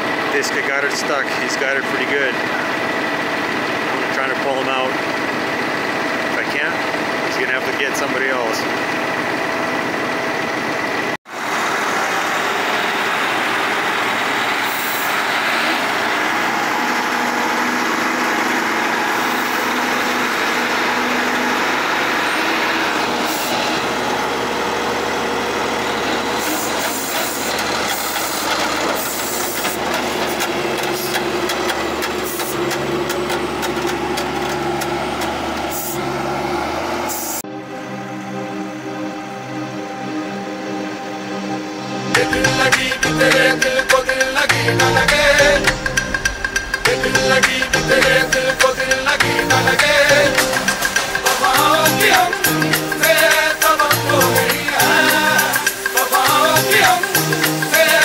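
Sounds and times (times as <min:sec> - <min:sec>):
heavy diesel engines running: 0:00.0 - 0:58.0
scattered clicks: 0:26.8 - 0:35.7.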